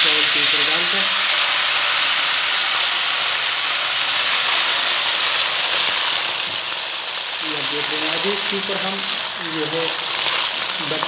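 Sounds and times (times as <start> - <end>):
ghee sizzling: 0.0 - 11.0.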